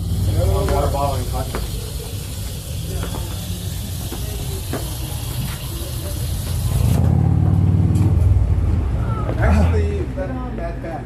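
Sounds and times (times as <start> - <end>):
steady hiss: 0.0 - 7.1
vehicle engine droning: 0.0 - 10.4.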